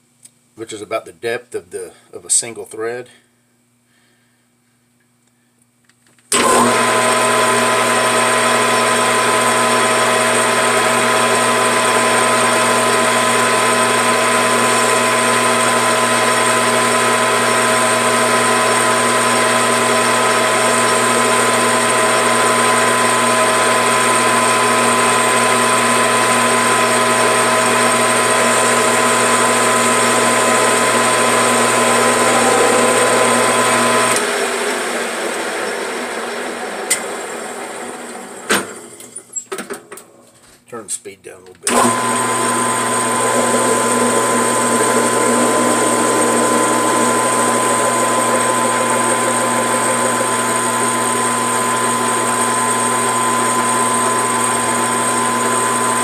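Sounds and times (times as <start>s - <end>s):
metal lathe whining: 6.4s - 34.6s, 41.7s - 56.0s.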